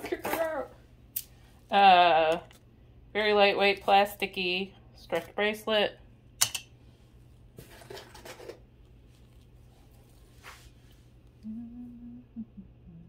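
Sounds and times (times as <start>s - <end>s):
soft rustle: 8.8s - 11.4s
brief low hum: 11.4s - 13.0s.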